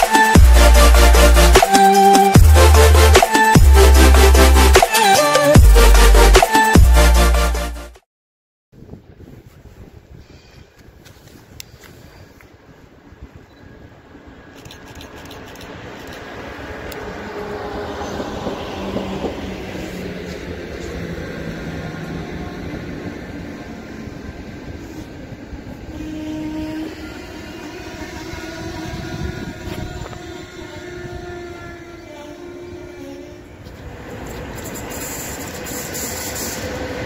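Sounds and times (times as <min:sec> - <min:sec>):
train wheels rolling on rails: 0:10.7 - 0:37.0.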